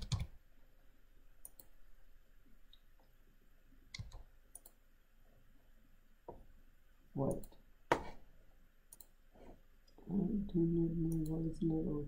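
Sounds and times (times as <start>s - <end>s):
keyboard and mouse clicks: 0.0s - 0.4s, 1.4s - 1.8s, 3.9s - 4.8s, 8.9s - 9.2s.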